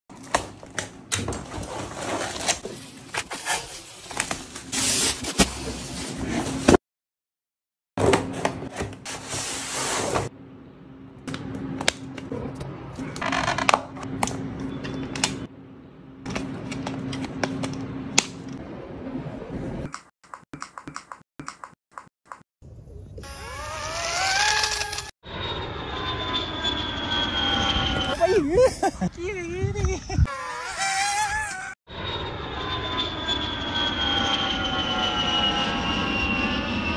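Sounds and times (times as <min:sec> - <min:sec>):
cardboard box scraping and rustling: 0:01.5 - 0:06.8.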